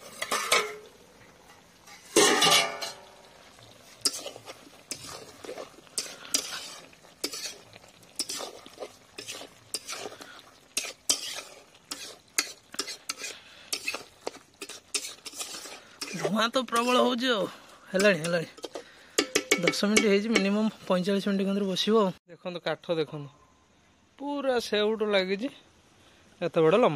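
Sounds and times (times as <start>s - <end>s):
spatula scraping metal pan: 0.0s - 0.9s, 1.5s - 3.1s, 3.8s - 20.7s
light sizzle: 0.0s - 22.2s, 24.1s - 26.9s
metal lid clang: 0.2s - 0.8s, 1.9s - 3.0s, 19.2s - 20.5s.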